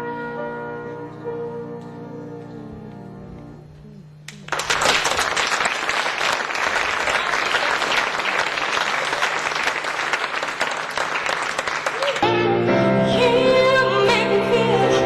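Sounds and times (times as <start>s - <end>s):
music: 0.0s - 4.2s, 12.0s - 15.0s
audience applauding: 4.3s - 12.3s.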